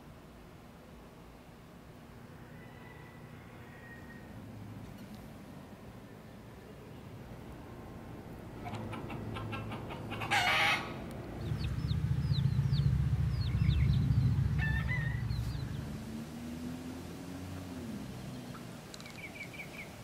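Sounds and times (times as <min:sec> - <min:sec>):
chicken squawk: 0:08.6 - 0:11.0
chickens clucking: 0:08.6 - 0:15.8
low rumble: 0:11.3 - 0:16.1
high falling peeps: 0:11.4 - 0:15.9.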